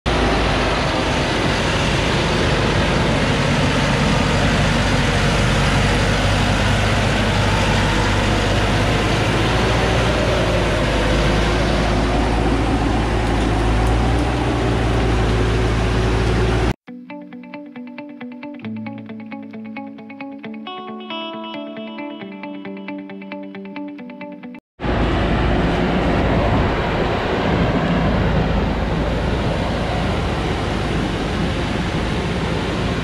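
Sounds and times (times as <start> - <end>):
diesel truck engine running: 0.1 - 16.8, 24.8 - 33.0
tyres churning through mud: 0.1 - 16.8.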